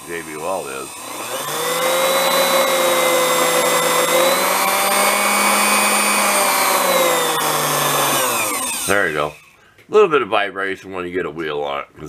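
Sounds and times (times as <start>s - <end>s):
grinder motor whining: 0.0s - 9.6s.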